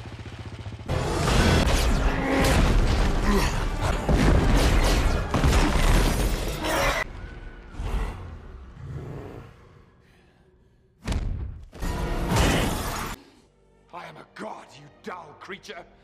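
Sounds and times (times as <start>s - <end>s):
music: 11.6s - 16.0s.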